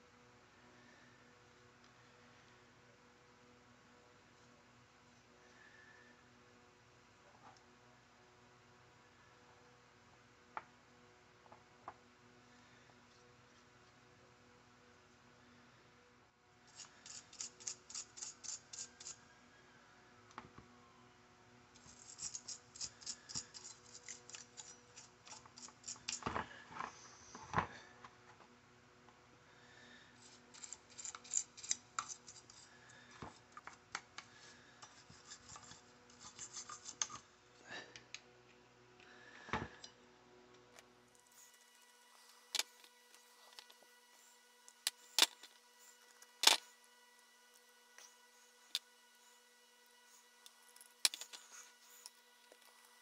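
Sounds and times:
hand scraping strokes on metal: 0:16.7 - 0:19.4, 0:21.8 - 0:27.3, 0:29.8 - 0:33.5, 0:34.2 - 0:37.3.

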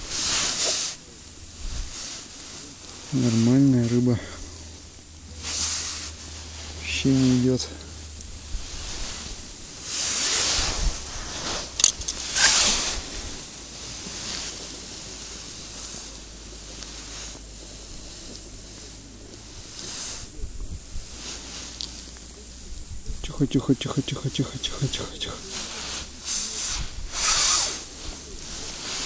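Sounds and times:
wind gusts on microphone: 0:01.4 - 0:02.1, 0:08.2 - 0:13.6, 0:19.6 - 0:21.5, 0:22.6 - 0:23.4, 0:26.1 - 0:29.0.

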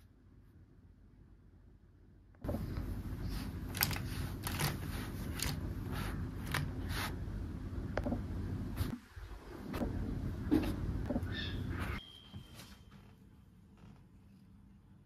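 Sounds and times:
steady low rumble: 0:00.6 - 0:12.0.

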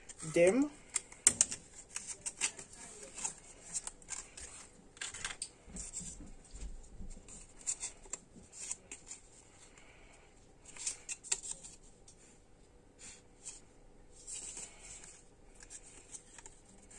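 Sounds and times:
light clicks and scratches: 0:00.0 - 0:09.9, 0:13.4 - 0:16.9.

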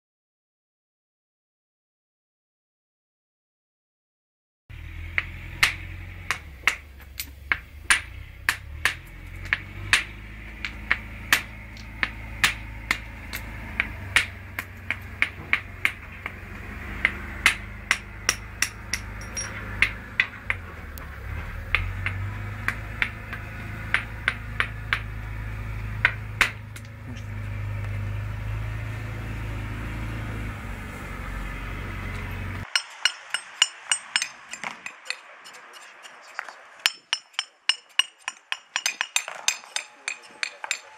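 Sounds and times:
hammer chipping stone: 0:05.1 - 0:20.7, 0:21.5 - 0:27.3, 0:32.6 - 0:40.9
hammer tapping cobblestones: 0:05.1 - 0:28.0, 0:32.1 - 0:40.9.

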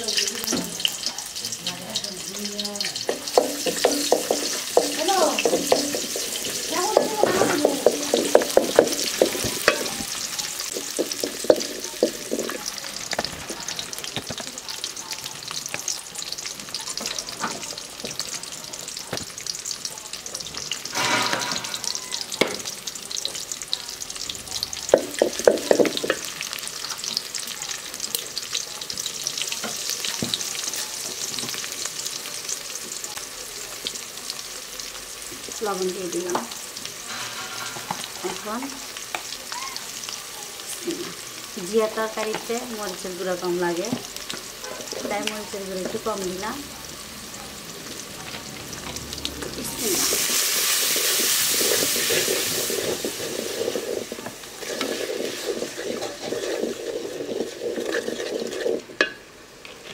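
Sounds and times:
onions sizzling in oil: 0:00.0 - 0:59.9
wooden spatula scraping pot: 0:03.1 - 0:13.9, 0:24.9 - 0:26.3, 0:37.0 - 0:38.6, 0:49.8 - 0:59.1.

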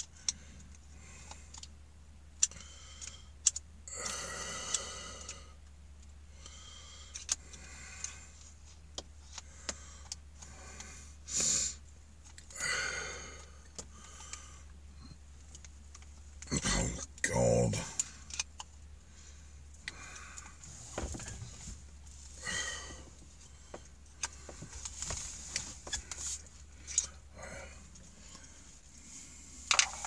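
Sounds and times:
strained grunts: 0:16.4 - 0:18.0, 0:22.4 - 0:23.2.

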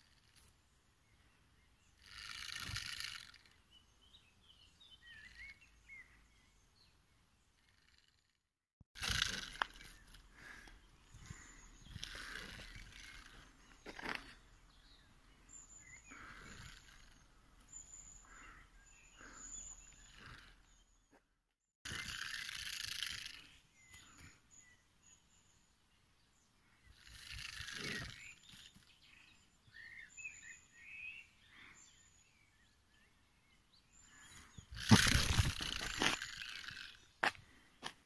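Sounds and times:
porcupine rattling quills: 0:02.0 - 0:03.6, 0:09.0 - 0:10.6, 0:11.2 - 0:14.4, 0:21.9 - 0:23.6, 0:27.0 - 0:28.9, 0:34.7 - 0:37.2.

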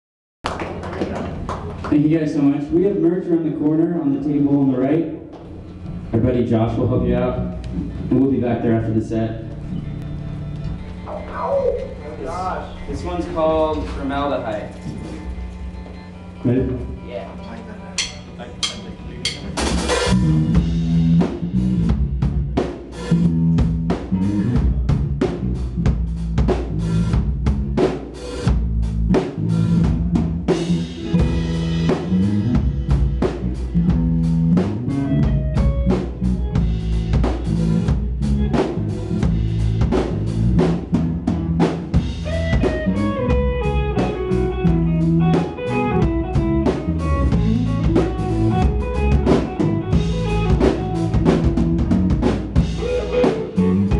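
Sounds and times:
drum kit beating: 0:00.4 - 0:53.9
electric guitar: 0:09.3 - 0:25.9, 0:29.1 - 0:53.9.

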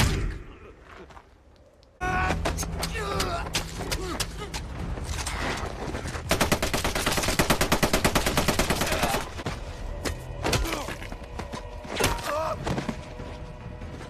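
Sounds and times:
rapid automatic gunfire: 0:06.3 - 0:09.2.

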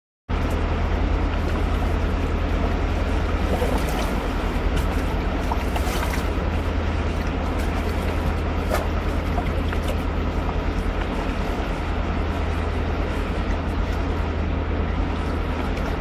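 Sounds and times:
low rumble: 0:00.3 - 0:16.0
river water rushing over rapids: 0:00.4 - 0:16.0.

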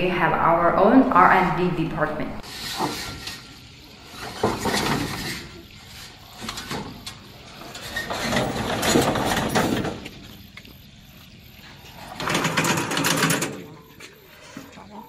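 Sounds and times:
metal ramp clanks and rattles: 0:06.4 - 0:10.2, 0:12.0 - 0:14.0
lawn mower engine running: 0:11.5 - 0:14.2.

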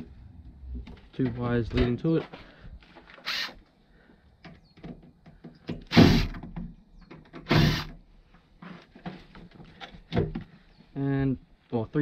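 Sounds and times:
cordless driver whirring: 0:03.2 - 0:03.6.

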